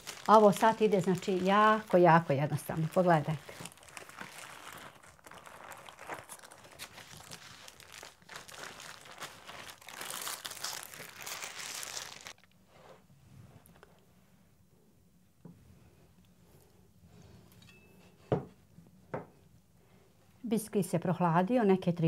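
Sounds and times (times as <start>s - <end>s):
baking paper crinkling: 0.0s - 12.5s.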